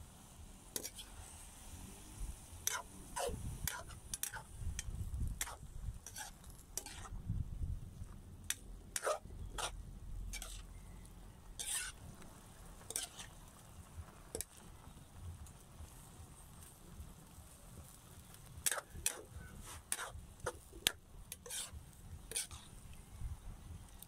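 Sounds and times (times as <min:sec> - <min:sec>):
metal spatula scraping a wok: 0:00.7 - 0:01.7, 0:02.6 - 0:07.2, 0:08.4 - 0:10.8, 0:11.5 - 0:12.2, 0:12.8 - 0:13.7, 0:18.6 - 0:22.9.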